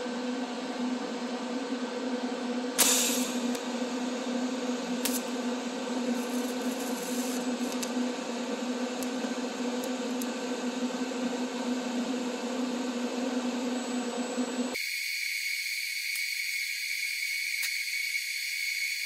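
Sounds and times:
welding arc buzzing: 0:02.8 - 0:14.6.

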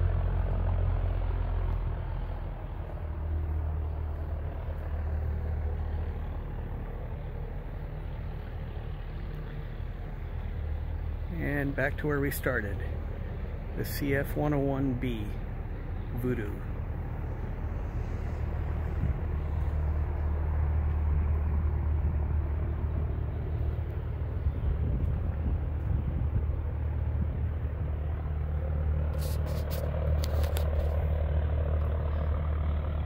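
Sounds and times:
low rumble: 0:00.0 - 0:33.0.

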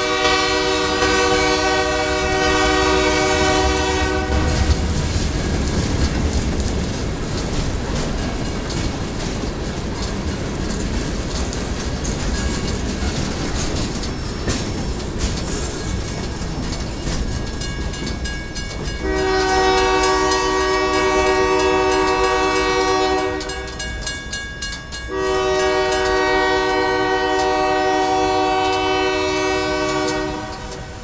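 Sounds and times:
locomotive air horn blasts: 0:00.0 - 0:04.8, 0:19.0 - 0:23.8, 0:25.1 - 0:31.0
freight train rolling: 0:00.0 - 0:31.0.

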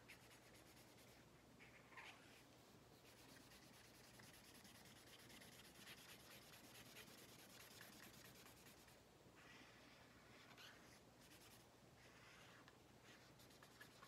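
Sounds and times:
marker scratching on paper: 0:03.0 - 0:09.0, 0:10.3 - 0:14.0.

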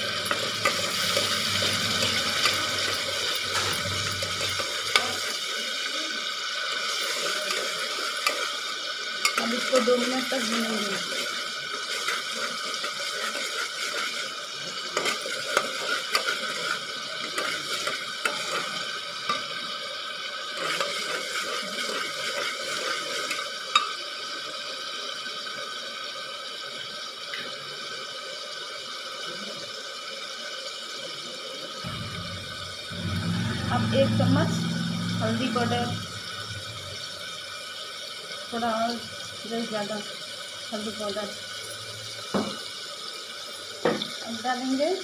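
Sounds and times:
food sizzling in hot oil: 0:00.0 - 0:45.0
metal spoon scraping pot: 0:00.2 - 0:05.2.

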